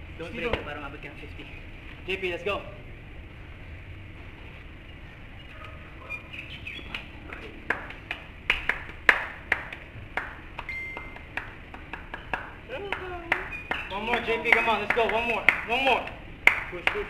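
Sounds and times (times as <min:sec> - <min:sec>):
sharp slaps: 0:06.8 - 0:17.0.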